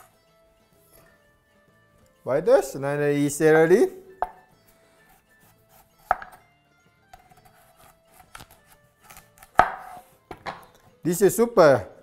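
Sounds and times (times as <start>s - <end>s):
knife cutting and scraping: 5.0s - 6.4s, 7.1s - 10.2s
knife knocking on wooden board: 6.1s - 6.4s, 9.6s - 10.7s.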